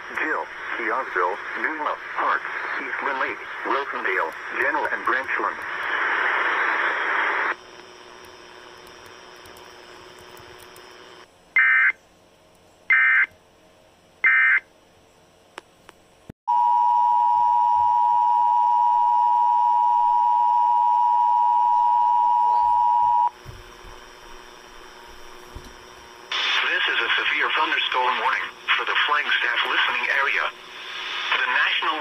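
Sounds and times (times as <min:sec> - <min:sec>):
faint radio hiss: 0:00.0 - 0:11.3, 0:24.5 - 0:32.0
click: 0:07.8 - 0:10.8.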